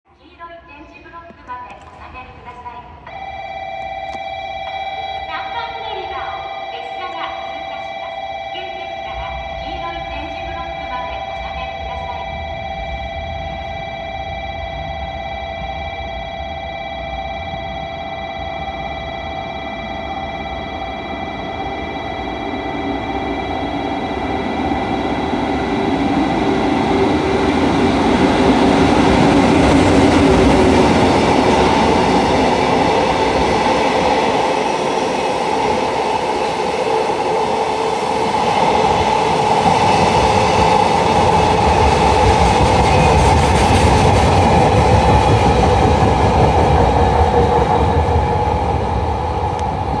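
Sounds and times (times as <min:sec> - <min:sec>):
electric locomotive passing: 0:02.5 - 0:50.0.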